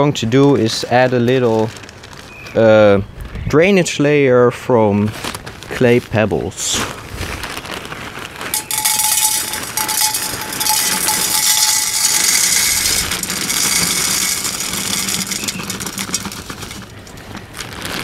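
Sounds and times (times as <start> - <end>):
pebbles rattling into glass jar: 8.5 - 18.0.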